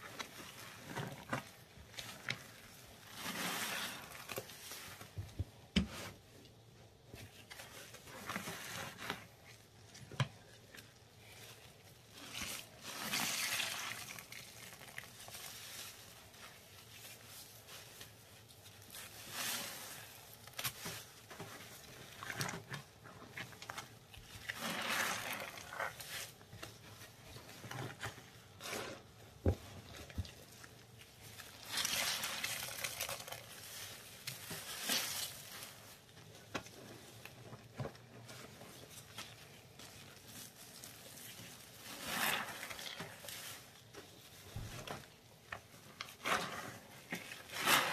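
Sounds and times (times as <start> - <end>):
wet paste squelching: 10.6 - 16.4, 17.0 - 27.4, 29.9 - 36.0.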